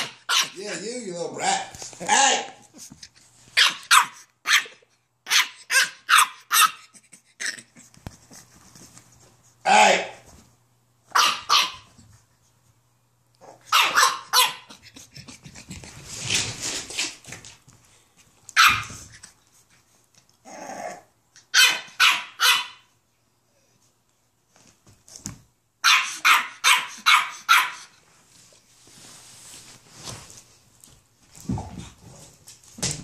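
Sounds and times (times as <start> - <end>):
puppy yapping barks: 0.0 - 0.6, 3.6 - 6.9, 11.1 - 11.9, 13.4 - 14.8, 18.6 - 19.0, 21.4 - 22.9, 25.8 - 27.9
puppy growling: 6.9 - 8.0, 20.4 - 21.2.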